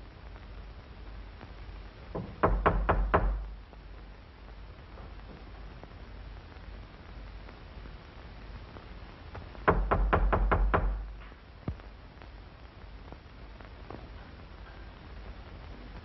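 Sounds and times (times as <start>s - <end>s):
knocking on door: 2.2s - 3.6s, 9.7s - 11.2s.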